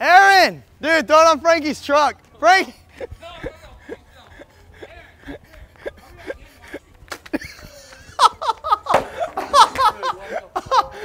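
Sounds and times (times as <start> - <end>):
man laughing hard: 2.8 - 11.0.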